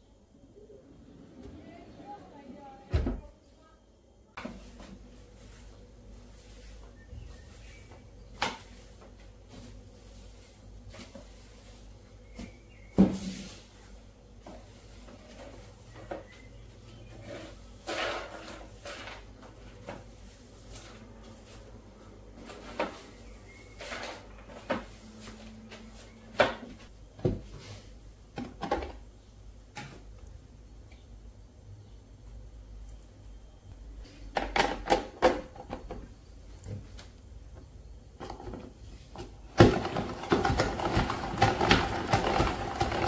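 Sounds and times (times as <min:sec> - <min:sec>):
broom sweeping tiles: 0:04.3 - 0:28.3
plastic dustpan knocking floor: 0:39.2 - 0:43.0.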